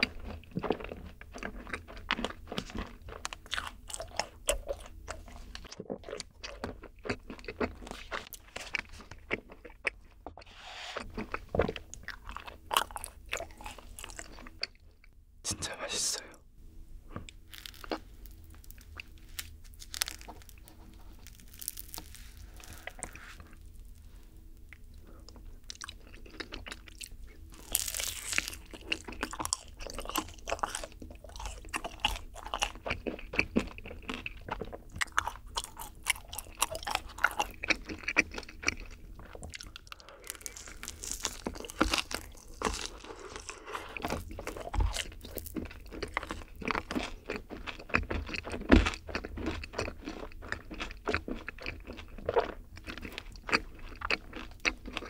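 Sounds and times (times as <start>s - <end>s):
chewing with small clicks: 0.0s - 10.5s, 11.2s - 15.2s, 24.6s - 55.0s
biting a cookie: 17.1s - 24.0s, 24.7s - 55.0s.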